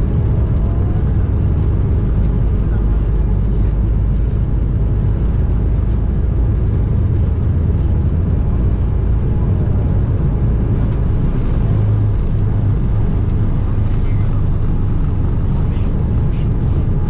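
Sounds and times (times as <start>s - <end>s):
aircraft cabin engine rumble: 0.0s - 17.0s.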